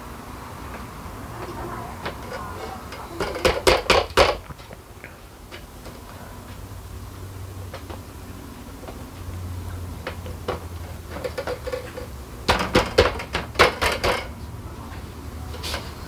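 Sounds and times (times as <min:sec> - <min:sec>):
loud knocks and rattles: 0:03.2 - 0:04.5, 0:10.1 - 0:14.3.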